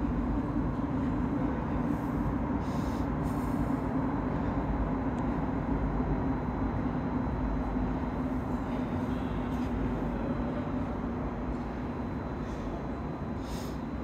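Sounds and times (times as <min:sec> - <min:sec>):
underground station rumble and hum: 0:00.0 - 0:14.0.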